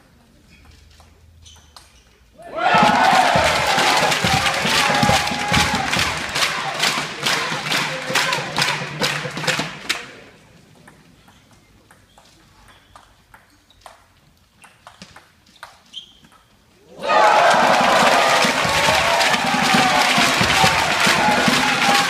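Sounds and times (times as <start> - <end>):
crowd cheering: 2.4 - 9.6, 16.9 - 22.0
crowd clapping rhythmically: 2.6 - 10.3, 17.0 - 22.0.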